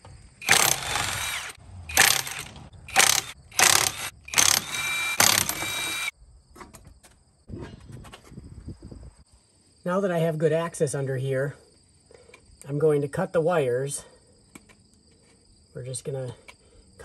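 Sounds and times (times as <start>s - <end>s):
impact wrench hammering: 0.4s - 6.1s.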